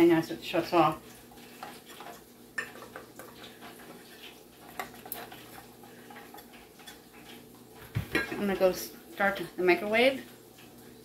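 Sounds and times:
food tumbling in a bowl: 0.9 - 8.8.

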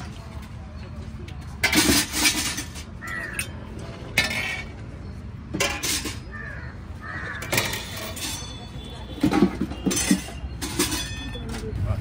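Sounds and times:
steel dishes clattering: 1.6 - 4.8, 5.6 - 6.3, 7.4 - 11.7
crow cawing: 6.3 - 7.5.

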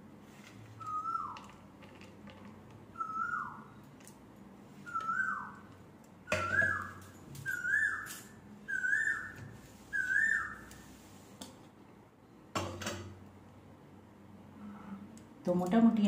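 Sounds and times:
bird whistling call: 0.8 - 1.4, 3.0 - 3.8, 4.8 - 10.8.

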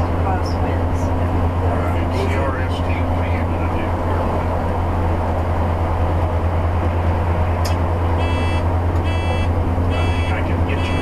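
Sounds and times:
diesel engine drone: 0.0 - 11.0
electronic beeping: 8.2 - 11.0.

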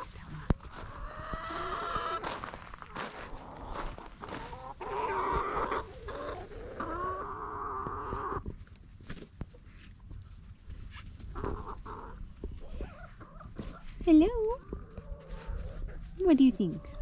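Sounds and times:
chickens clucking: 0.0 - 17.0.

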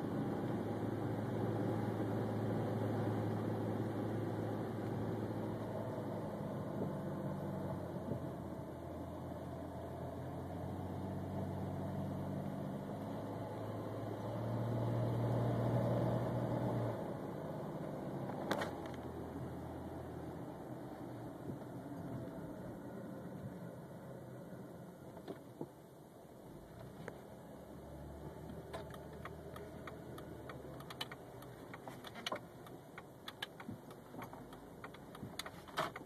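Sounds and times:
road noise: 0.0 - 36.0
car engine running: 26.3 - 36.0.

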